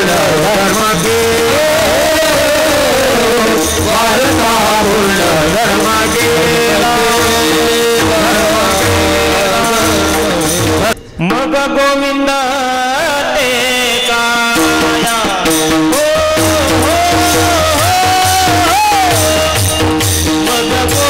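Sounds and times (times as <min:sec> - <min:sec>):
low drum beats: 0:00.0 - 0:11.0
hand cymbals clashing: 0:00.0 - 0:11.1
men singing together: 0:00.0 - 0:21.0.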